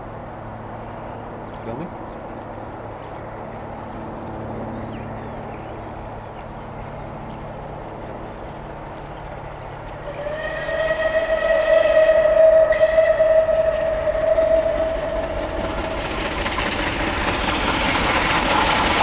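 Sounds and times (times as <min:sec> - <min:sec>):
distant steam locomotive rumble: 0:00.0 - 0:19.0
steam whistle: 0:10.0 - 0:19.0.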